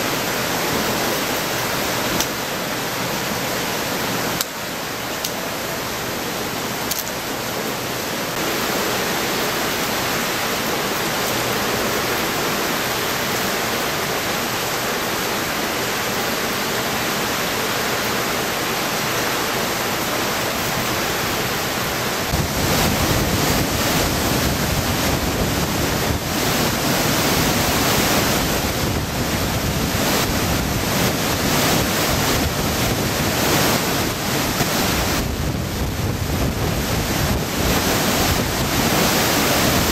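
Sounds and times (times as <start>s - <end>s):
driving rain: 0.0s - 39.9s
flooded river rushing: 0.0s - 39.9s
strong wind: 0.0s - 39.9s
water gushing from storm drain: 0.0s - 39.9s
wind on microphone: 21.8s - 39.9s.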